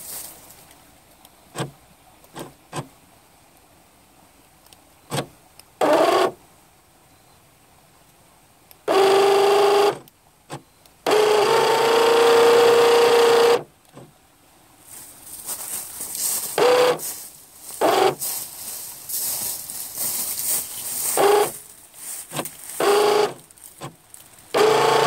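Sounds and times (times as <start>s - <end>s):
small electric motor whining: 11.1s - 13.7s, 16.6s - 17.0s, 17.8s - 18.2s, 21.2s - 21.6s, 22.4s - 25.0s
rushing hiss: 14.9s - 23.0s.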